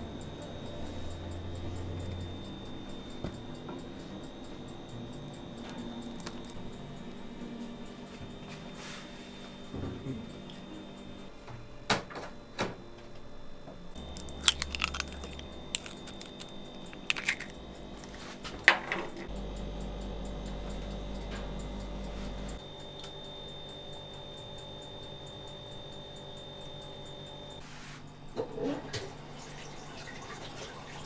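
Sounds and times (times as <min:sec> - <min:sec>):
low steady hum: 0:00.0 - 0:29.4.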